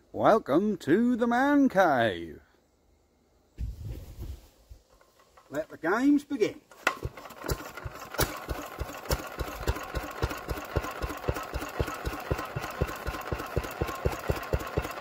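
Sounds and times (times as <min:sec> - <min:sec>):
single-cylinder engine idling: 0:07.0 - 0:15.0.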